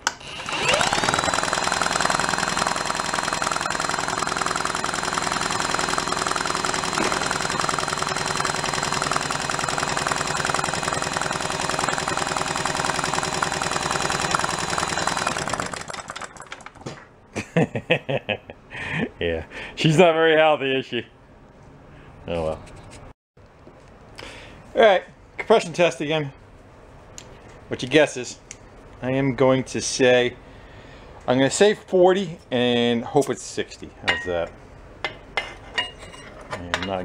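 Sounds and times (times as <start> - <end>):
cordless drill whine: 0.0 - 16.1
engine turning over: 0.0 - 17.1.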